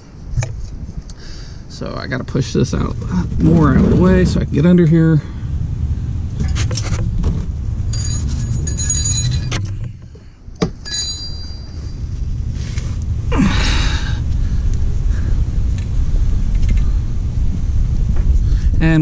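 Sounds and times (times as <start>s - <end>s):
steady low rumble: 0.0s - 19.0s
rustling and scraping: 2.9s - 4.6s, 6.3s - 13.2s.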